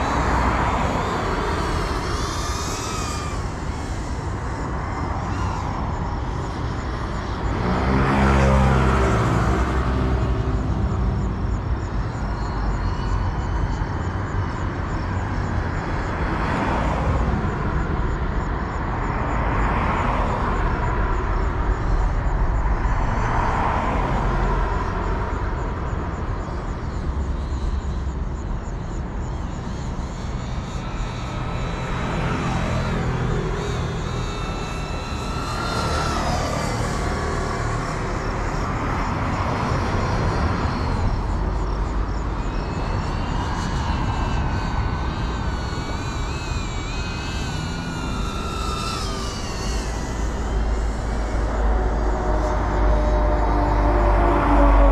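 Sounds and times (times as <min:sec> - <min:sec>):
drone motors whining: 0:00.0 - 0:54.9.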